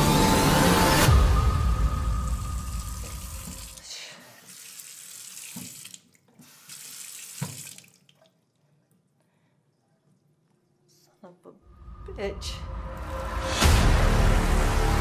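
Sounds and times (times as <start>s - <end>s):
deep musical rumble: 0.0s - 3.5s, 11.7s - 15.0s
faucet running into a sink: 2.8s - 3.8s, 4.4s - 8.3s.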